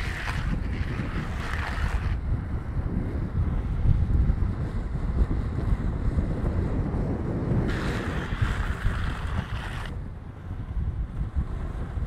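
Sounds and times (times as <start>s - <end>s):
wheels sliding hiss: 0.0s - 2.2s, 7.6s - 10.0s
wheels rumbling on asphalt: 0.0s - 12.0s
wind buffeting microphone: 0.0s - 12.0s.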